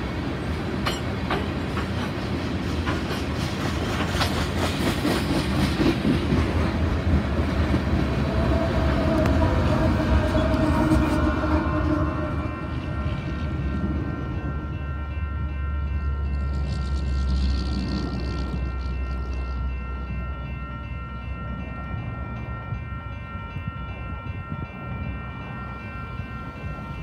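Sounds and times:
diesel locomotive engine: 0.0s - 27.0s
train wheels clicking over rail joints: 0.6s - 8.3s.

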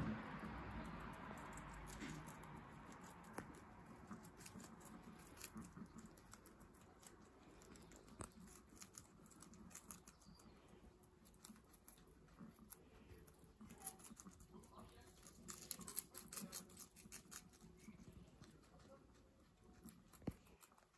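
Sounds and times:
guinea pigs chewing: 0.0s - 20.9s.

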